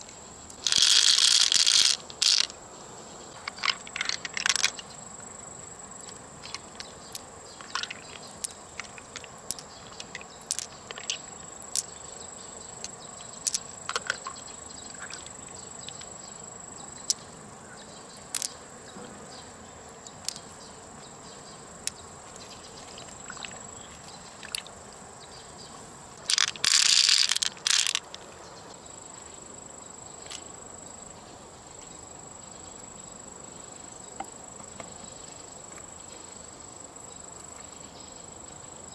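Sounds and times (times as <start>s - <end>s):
high insect drone: 0.0s - 38.9s
pearls clicking together: 0.6s - 2.6s, 3.5s - 4.8s, 6.5s - 11.9s, 12.8s - 14.4s, 18.3s - 18.6s, 26.2s - 28.2s.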